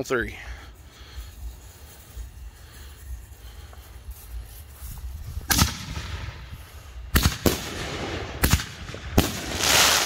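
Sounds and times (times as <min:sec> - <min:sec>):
firework mortar launch booms: 0:05.5 - 0:06.4, 0:07.1 - 0:10.0.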